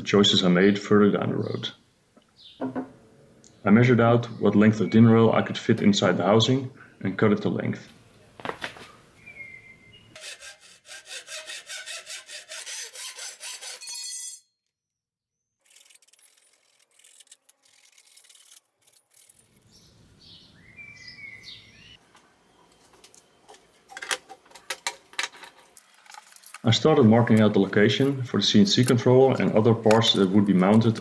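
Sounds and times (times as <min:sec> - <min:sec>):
faint bird chirps: 0:09.2 - 0:10.2, 0:19.7 - 0:23.4
hand saw cutting metal: 0:10.2 - 0:14.4, 0:15.6 - 0:19.5.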